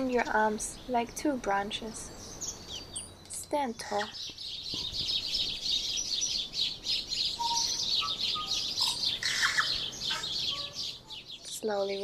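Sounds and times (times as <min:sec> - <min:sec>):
birds chirping: 0:00.0 - 0:12.0
low whistled bird notes: 0:04.0 - 0:11.5.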